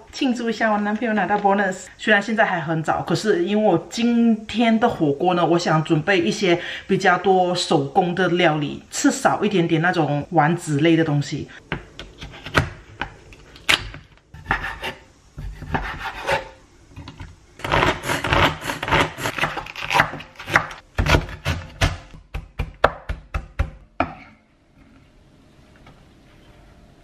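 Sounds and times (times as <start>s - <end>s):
cleaver chopping on wooden board: 17.7s - 24.1s.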